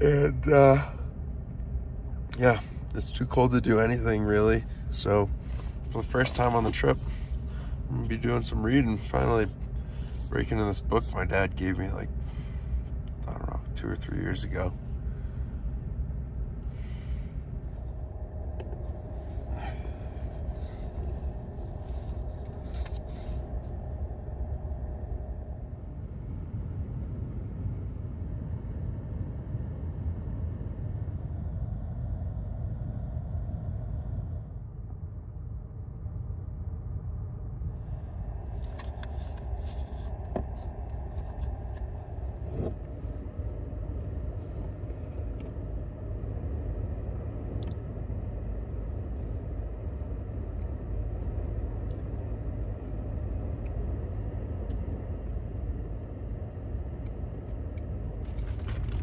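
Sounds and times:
clicks and rustles of handling: 0:58.2 - 0:59.0.

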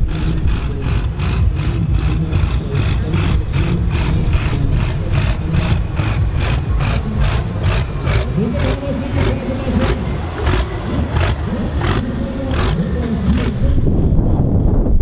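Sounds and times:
tractor diesel engine running: 0:00.0 - 0:14.8.

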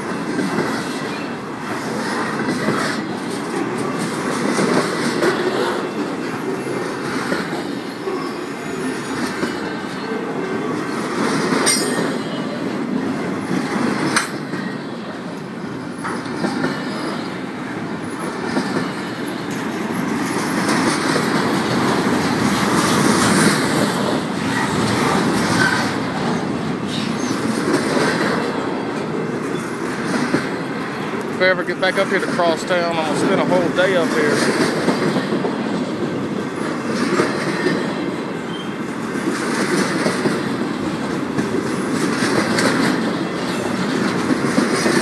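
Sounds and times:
freight train wheels rumbling: 0:00.0 - 0:45.0
sharp rail clacks: 0:10.9 - 0:12.4, 0:13.6 - 0:14.7, 0:39.2 - 0:45.0.

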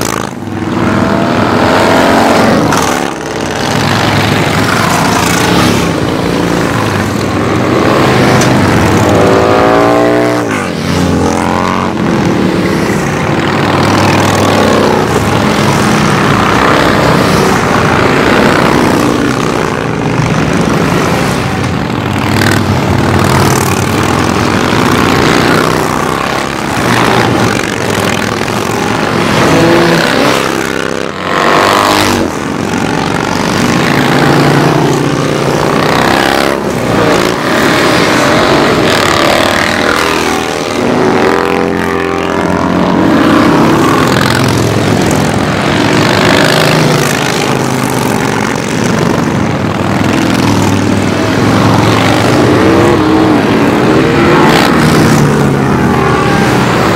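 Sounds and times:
motorcycles riding past: 0:00.0 - 0:56.9.

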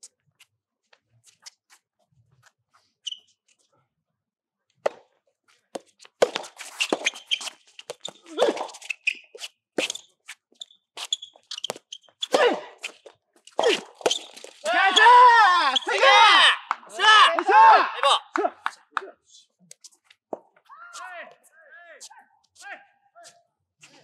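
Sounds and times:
shoe squeaks: 0:01.2 - 0:03.6, 0:05.8 - 0:15.0, 0:19.7 - 0:24.0
racket hitting tennis ball: 0:04.8 - 0:05.1, 0:05.8 - 0:08.9, 0:13.6 - 0:14.6.

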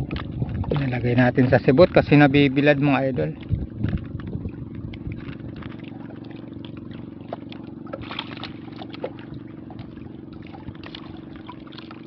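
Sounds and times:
boat engine humming: 0:00.0 - 0:12.0.

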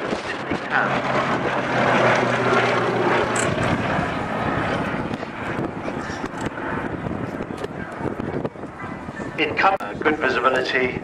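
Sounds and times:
propeller planes flying past: 0:00.0 - 0:11.0.

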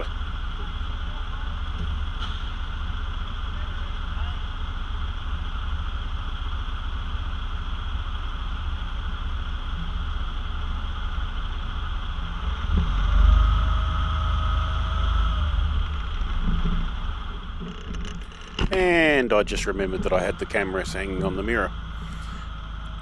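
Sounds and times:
faint steady whine: 0:00.0 - 0:23.0
truck diesel engine idling: 0:00.0 - 0:23.0.

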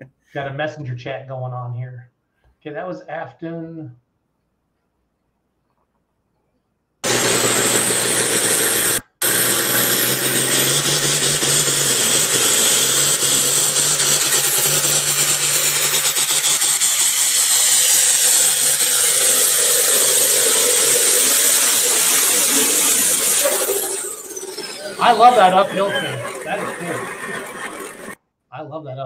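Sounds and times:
tractor engine under load: 0:07.0 - 0:28.2.

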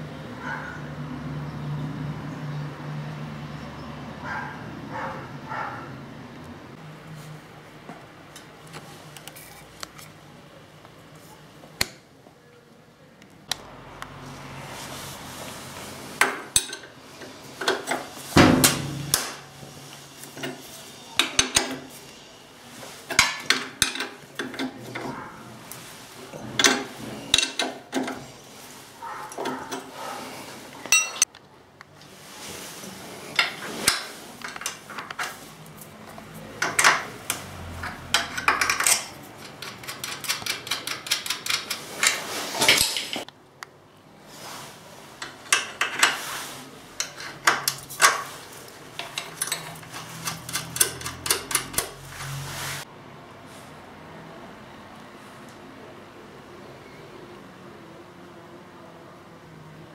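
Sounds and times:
spanner clicking on bolt: 0:36.6 - 0:42.2, 0:49.0 - 0:52.0.

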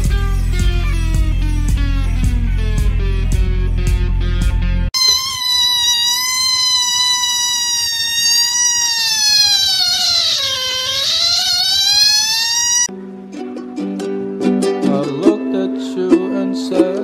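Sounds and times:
kitten meowing: 0:05.0 - 0:12.9.

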